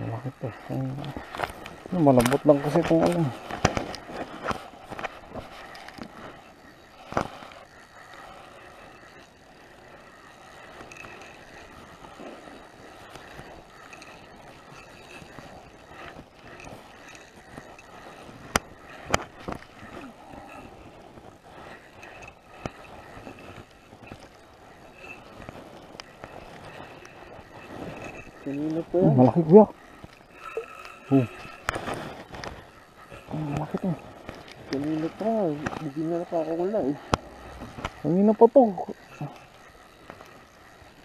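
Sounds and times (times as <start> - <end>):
fishing rod and reel handling: 0.2 - 41.0
sharp clicks and knocks: 1.0 - 6.1.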